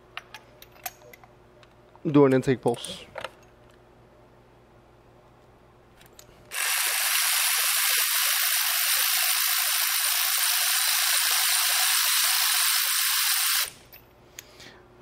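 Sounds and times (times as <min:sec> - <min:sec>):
power ratchet whirring: 0:06.5 - 0:13.8.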